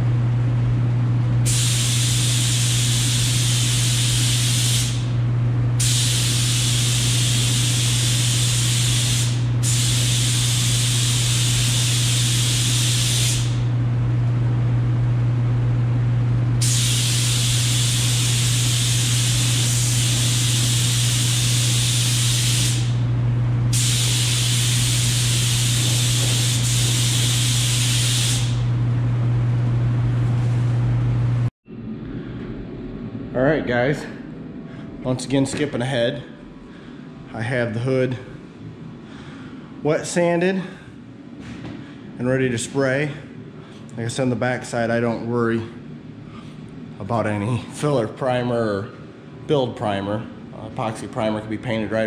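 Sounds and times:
steady low hum: 0.0s - 52.0s
paint spray gun hissing: 1.5s - 5.1s, 5.8s - 13.6s, 16.6s - 23.0s, 23.7s - 28.7s.

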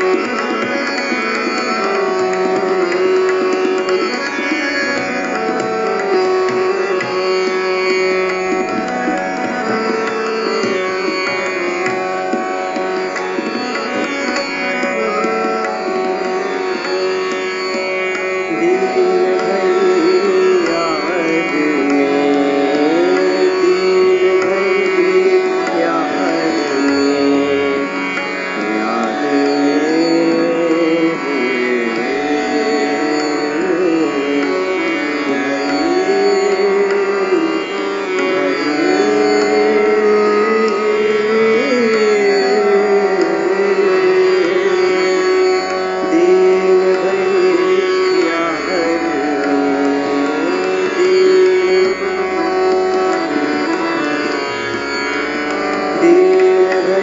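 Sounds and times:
tabla: 0.0s - 57.0s.

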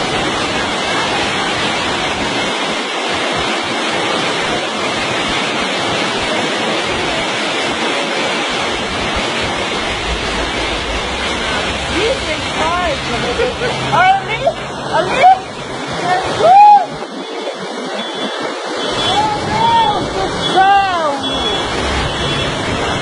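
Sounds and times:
floodwater rushing: 0.0s - 23.0s
low rumble: 8.6s - 14.9s.

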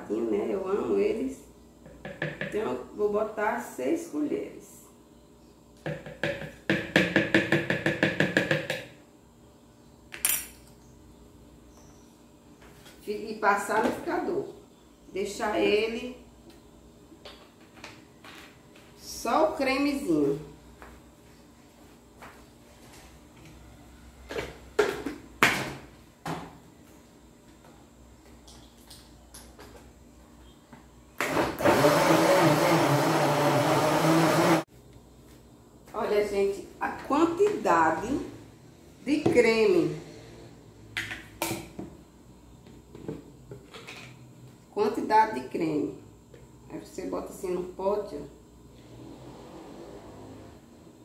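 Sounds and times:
electric blender running: 31.2s - 34.7s.

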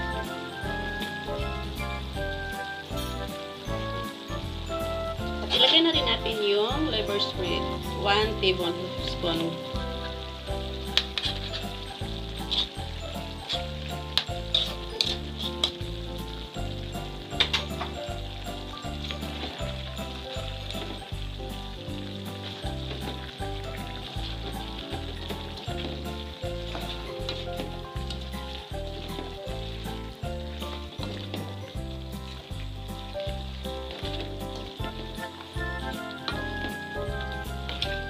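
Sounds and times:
chicken sizzling in a pan: 0.0s - 38.0s
spoon scraping a pan: 9.4s - 16.3s.

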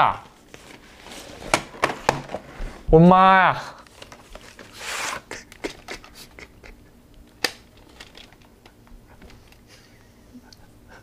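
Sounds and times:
cardboard rustle: 0.4s - 2.8s.

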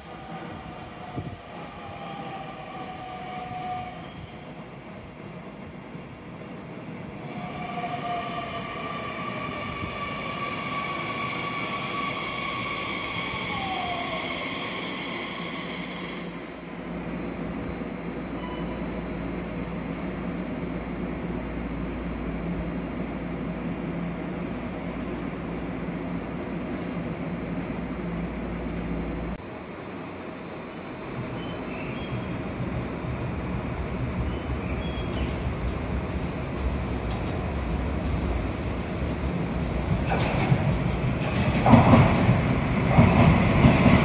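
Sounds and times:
train squealing and whining: 0.0s - 4.6s, 7.2s - 17.1s, 17.7s - 19.1s.

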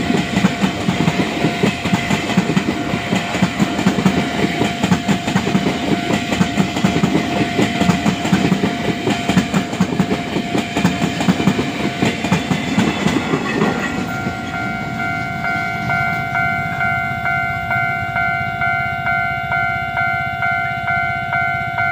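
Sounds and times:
freight train clattering over rail joints: 0.0s - 16.9s
level crossing warning bell: 0.0s - 21.9s.

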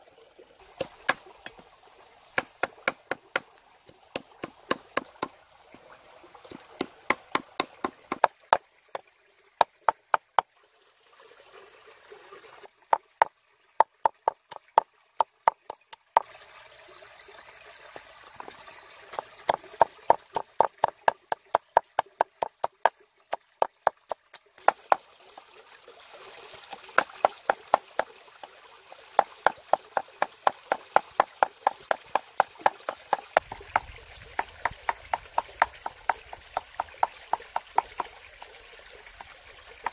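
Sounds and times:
cleaver chopping on wooden board: 0.7s - 1.6s, 2.4s - 3.5s, 4.1s - 5.4s, 6.5s - 8.3s, 19.2s - 22.9s, 26.7s - 28.1s, 29.2s - 38.1s.

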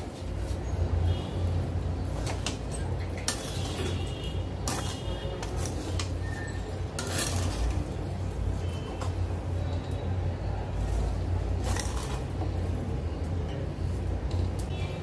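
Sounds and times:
metal spatula scraping pan: 2.1s - 8.0s.

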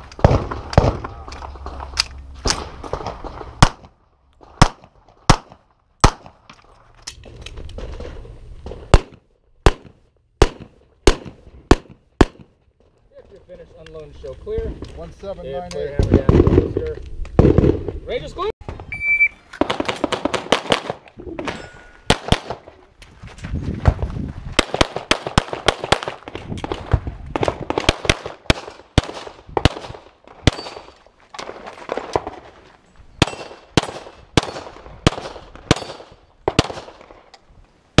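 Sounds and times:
pistol shots: 4.5s - 6.4s, 8.9s - 12.5s, 33.2s - 37.1s.

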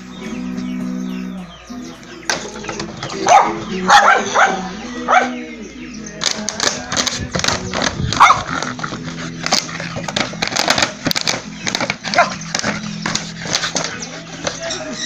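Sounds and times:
dog barking: 3.2s - 5.4s, 8.1s - 8.7s, 12.0s - 12.7s
plastic bottle rattling and crackling: 6.2s - 15.0s.

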